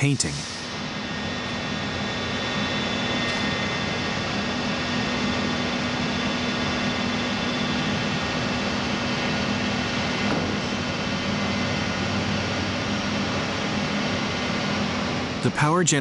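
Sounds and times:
industrial machinery humming: 0.0s - 16.0s.

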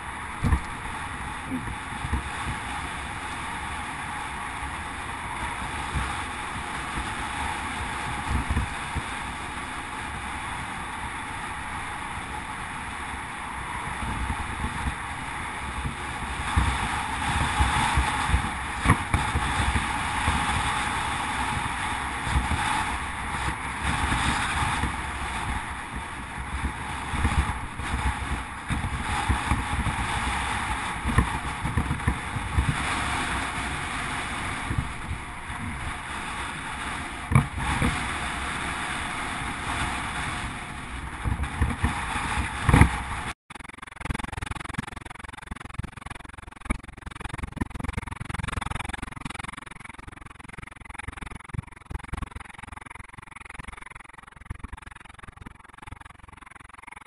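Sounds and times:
wind buffeting microphone: 0.0s - 43.4s
bicycle tyre rumble on tarmac: 0.0s - 57.0s.

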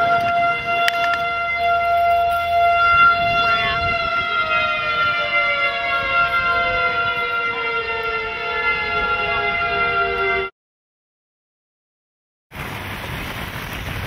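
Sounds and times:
warning siren: 0.0s - 10.6s.

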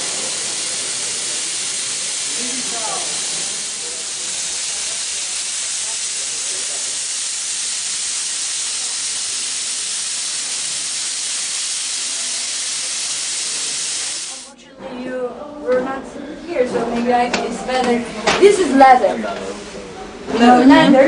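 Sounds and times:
sandblasting hiss: 0.0s - 14.5s.

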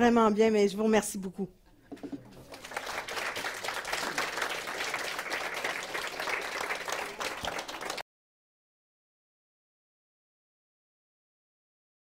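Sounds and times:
audience applauding: 2.1s - 8.0s.

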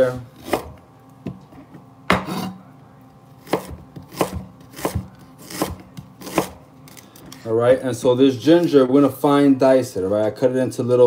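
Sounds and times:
knife slicing on a cutting board: 3.4s - 6.6s.

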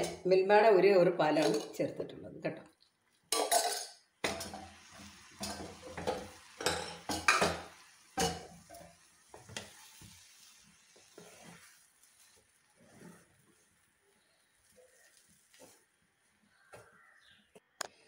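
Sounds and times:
sizzling: 2.8s - 17.2s
wooden spatula scraping pan: 5.4s - 15.9s.

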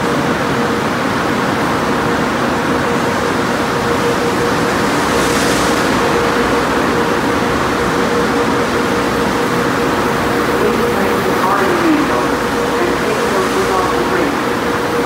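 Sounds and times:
machinery hum: 0.0s - 15.0s.

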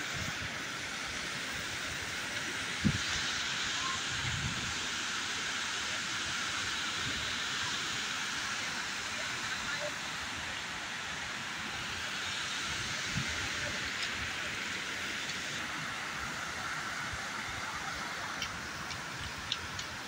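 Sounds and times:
waterfall rushing: 0.0s - 20.0s
faint clicks: 18.3s - 19.9s.

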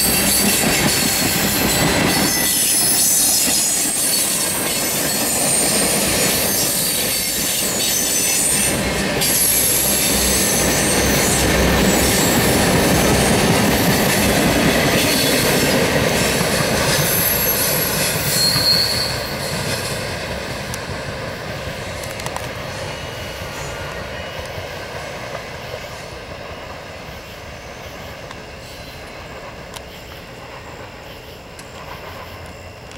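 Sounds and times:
wheel squeal: 0.0s - 15.6s, 16.2s - 19.9s
train wheels rumbling on rail: 0.0s - 32.9s.

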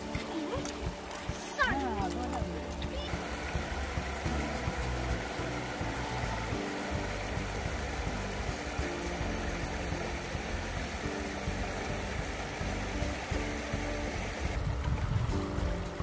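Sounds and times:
river water rushing and splashing: 0.0s - 16.0s.

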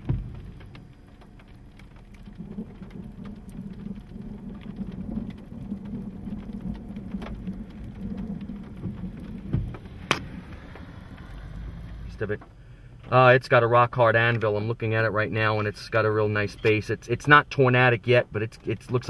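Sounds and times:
low thump: 0.0s - 0.8s, 8.1s - 13.2s
raindrops tapping on windshield: 0.0s - 19.0s.

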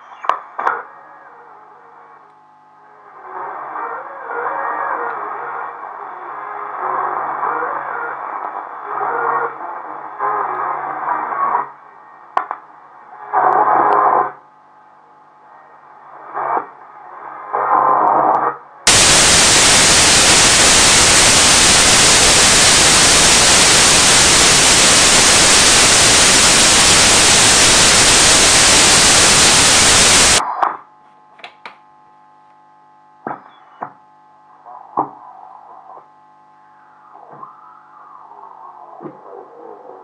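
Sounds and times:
faint radio stations: 0.0s - 14.4s, 15.0s - 31.7s
crackles and clicks: 18.9s - 30.4s
loud even hiss: 18.9s - 30.4s.

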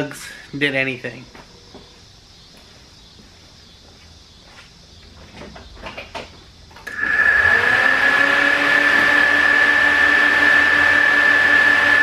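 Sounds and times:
turbo whine: 5.9s - 12.0s.

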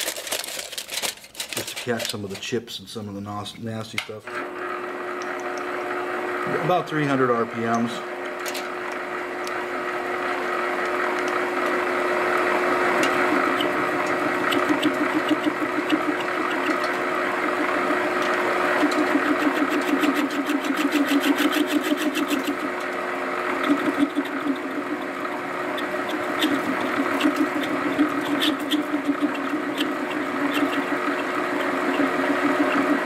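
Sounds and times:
metal lathe humming: 4.3s - 33.0s
tool bit ticking on metal: 18.9s - 22.6s.

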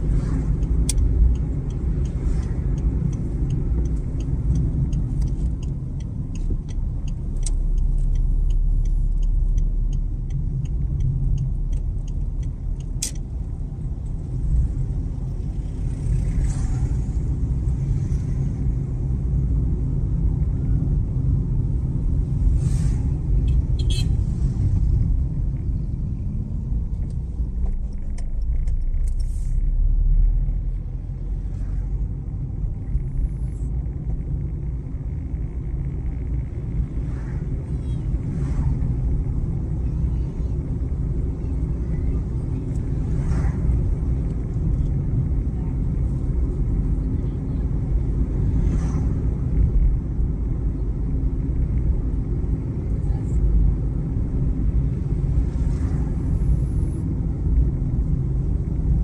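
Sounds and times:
light regular ticking: 0.0s - 22.6s, 23.2s - 41.9s
car engine and tyre rumble: 0.0s - 59.0s.

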